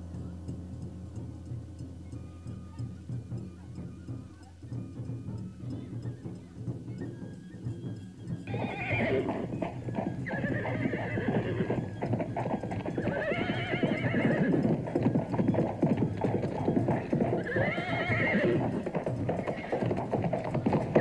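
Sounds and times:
hooves clip-clopping: 0.0 - 21.0
horse neighing: 8.5 - 9.5, 10.2 - 14.9, 16.6 - 20.0.

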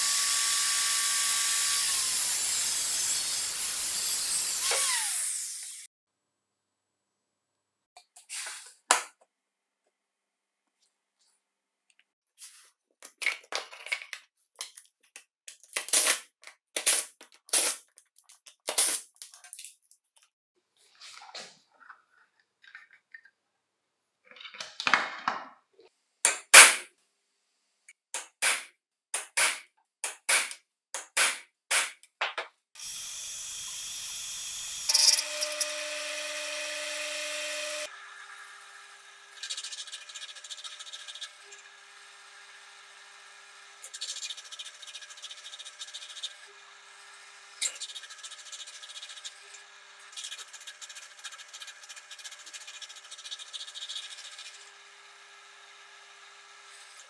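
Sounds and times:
taps and clicks of hand work: 27.9 - 32.6.

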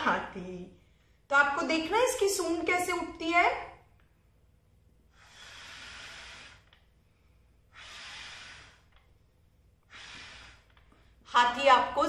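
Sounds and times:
person blowing into paper blower: 5.2 - 6.7, 7.7 - 9.0, 9.8 - 10.8.

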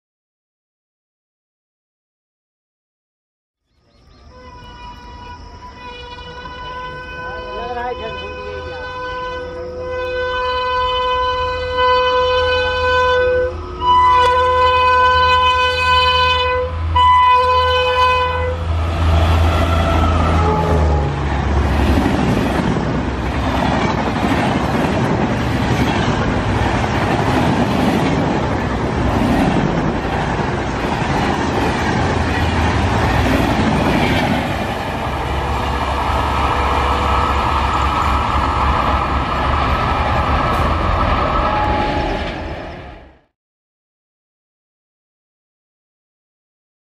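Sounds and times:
locomotive hum and whine: 3.9 - 43.3
locomotive horn: 4.3 - 21.5, 34.9 - 38.8, 40.5 - 42.5.

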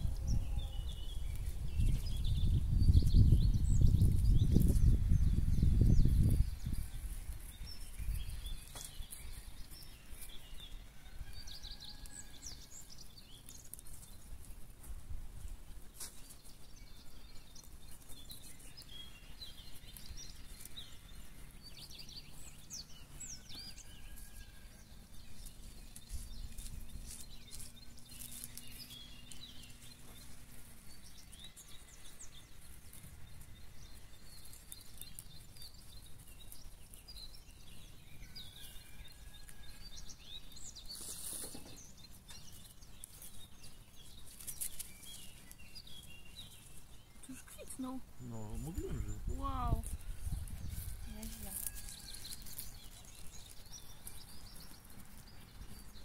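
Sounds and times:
small birds chirping: 0.0 - 56.0
hand cultivator scratching soil: 25.2 - 30.3, 40.6 - 46.2, 49.8 - 56.0.

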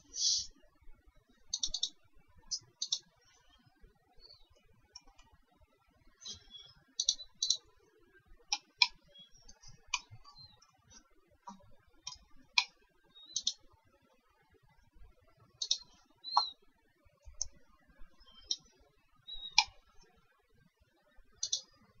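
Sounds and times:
computer mouse clicking: 1.6 - 2.0, 2.6 - 3.0, 6.3 - 7.6, 8.5 - 10.1, 21.4 - 21.7.

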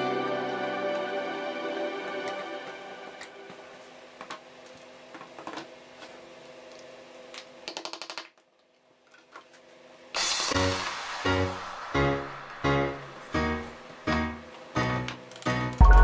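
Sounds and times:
background music: 0.0 - 3.9, 10.2 - 16.0.

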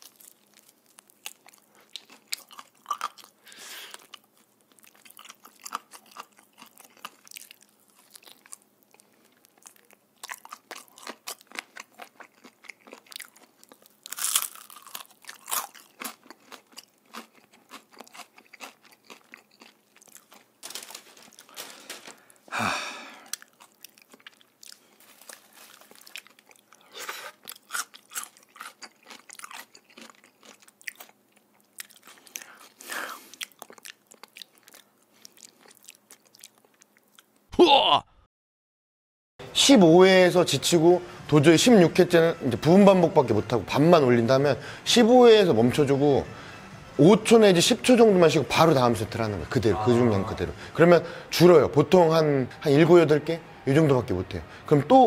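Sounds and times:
crunching fried chicken: 0.0 - 22.4, 23.2 - 37.3.

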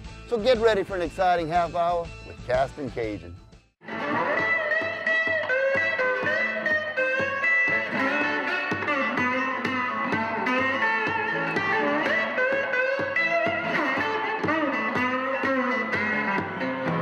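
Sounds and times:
electric guitar theme music: 0.0 - 17.0
steady beat: 4.0 - 17.0.

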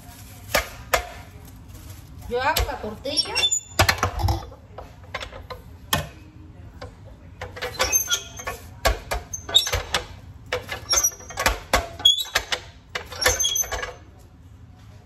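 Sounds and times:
plastic sheet rustling: 0.0 - 3.1
metal tortilla press knock: 7.4 - 13.8.

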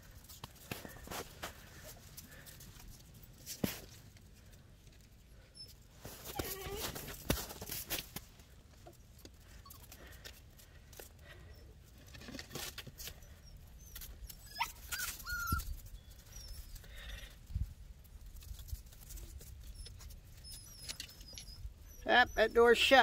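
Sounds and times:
puppies whimpering and yipping: 5.6 - 7.1, 13.2 - 16.9.

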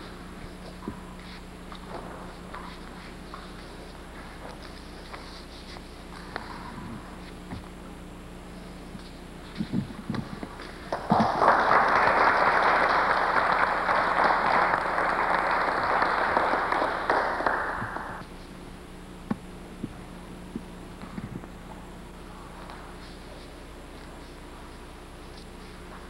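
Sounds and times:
audience applauding: 10.9 - 18.2.

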